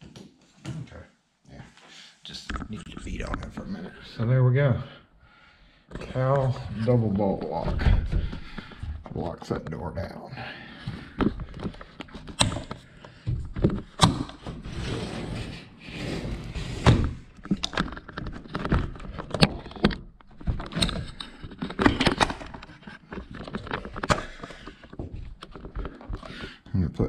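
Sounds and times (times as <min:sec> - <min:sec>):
door scraping: 0:13.8 - 0:17.4
sliding door rattling: 0:14.7 - 0:17.2.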